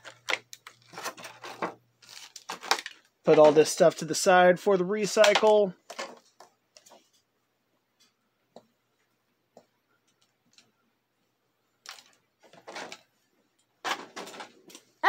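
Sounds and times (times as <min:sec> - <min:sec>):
plastic packaging crinkling: 0:00.0 - 0:03.8.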